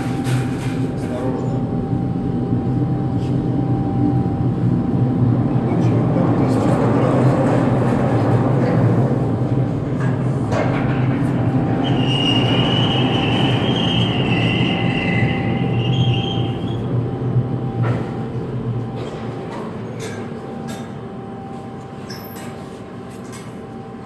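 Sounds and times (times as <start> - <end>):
machinery humming: 0.0 - 24.0
high metallic squeal: 11.7 - 16.9.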